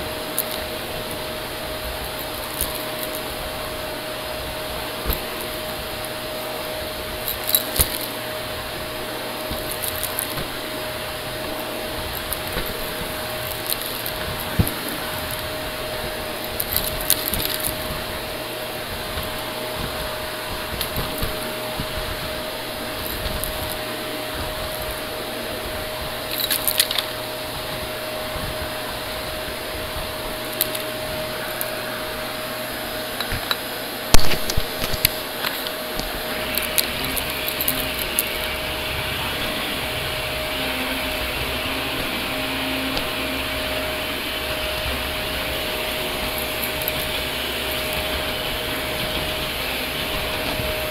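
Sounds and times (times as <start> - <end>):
debris crackling in vacuum: 0.0 - 50.9
vacuum cleaner running: 0.0 - 50.9.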